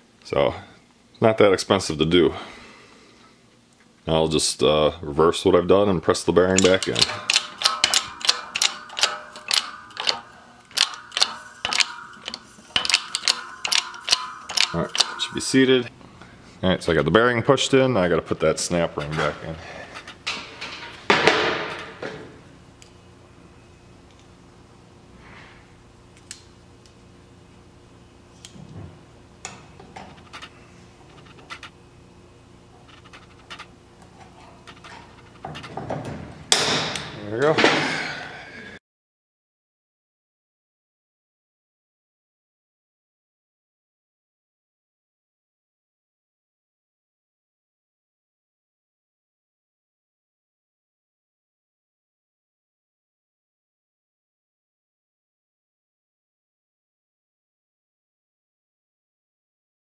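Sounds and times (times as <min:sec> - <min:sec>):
steady low hum: 0:00.0 - 0:38.8
press pump metallic clicks: 0:06.5 - 0:15.8, 0:29.4 - 0:31.7, 0:32.8 - 0:33.7, 0:34.6 - 0:35.9
loud knock: 0:21.1 - 0:22.1.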